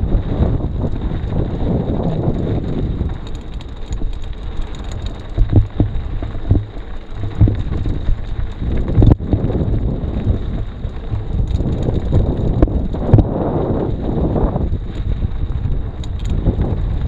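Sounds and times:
wind buffeting microphone: 0:00.0 - 0:17.0
sharp knocks and rattles: 0:03.3 - 0:08.2.

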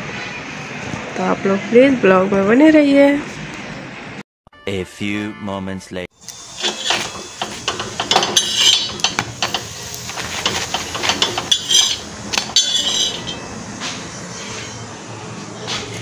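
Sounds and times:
metal spatula scraping griddle: 0:06.5 - 0:13.5.

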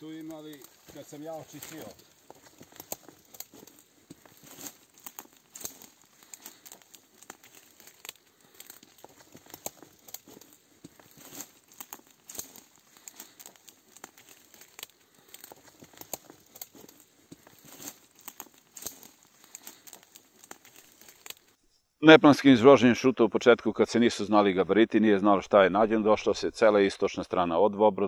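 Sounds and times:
footsteps crunching on dry ground: 0:00.0 - 0:21.6.

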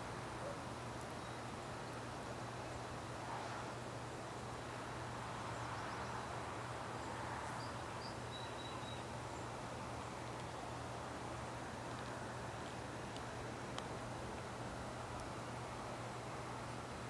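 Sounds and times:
steady hiss: 0:00.0 - 0:17.0
faint bird chirps: 0:07.0 - 0:09.4.

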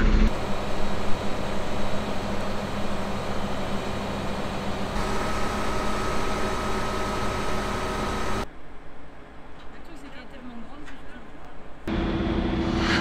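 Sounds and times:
crane engine running: 0:00.0 - 0:08.5, 0:11.9 - 0:13.0
steady high whine: 0:00.0 - 0:08.5.

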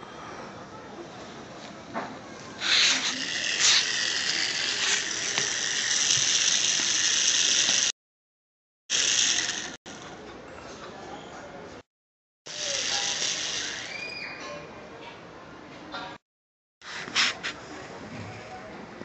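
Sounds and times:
toy train motor whirring: 0:02.6 - 0:08.0, 0:08.9 - 0:10.2, 0:12.5 - 0:14.1.

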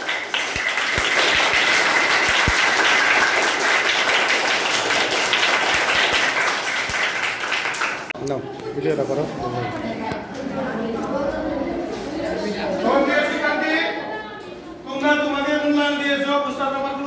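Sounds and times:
children clapping: 0:00.0 - 0:08.2.

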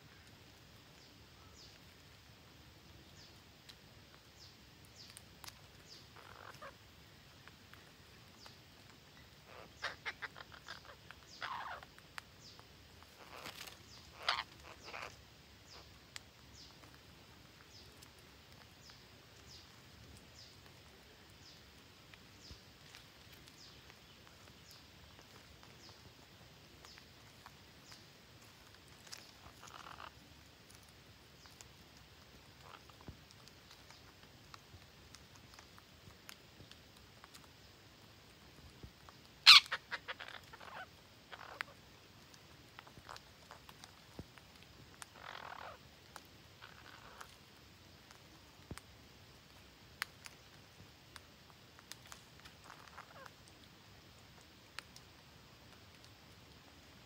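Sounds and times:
parrots chirping and squawking: 0:05.5 - 0:06.8, 0:09.2 - 0:12.2, 0:13.0 - 0:16.0, 0:28.4 - 0:30.2, 0:32.6 - 0:33.0, 0:39.4 - 0:41.8, 0:45.0 - 0:45.8, 0:46.6 - 0:47.4, 0:52.0 - 0:53.4.

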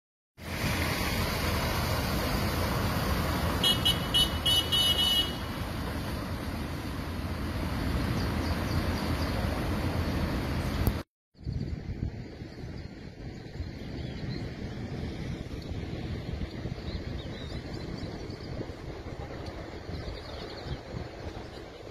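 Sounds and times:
wind and rain rushing: 0:00.4 - 0:04.6, 0:11.7 - 0:21.9
truck driving through water: 0:00.4 - 0:11.0
car horn beeping: 0:03.6 - 0:05.6.

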